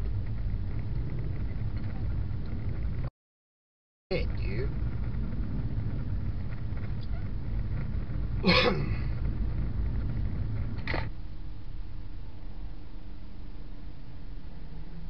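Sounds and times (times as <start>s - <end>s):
car rumble from inside cabin: 0.0s - 3.1s, 4.1s - 12.6s, 13.8s - 15.0s.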